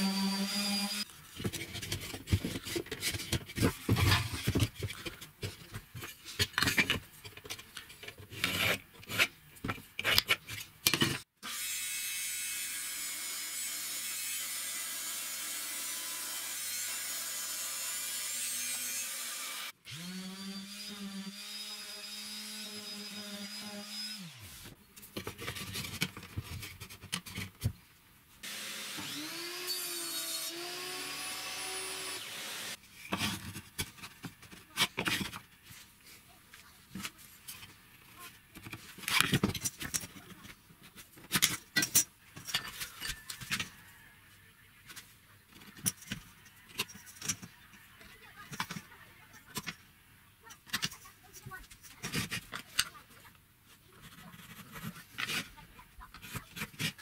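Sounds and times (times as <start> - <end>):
electric power tool running: 28.4 - 32.8.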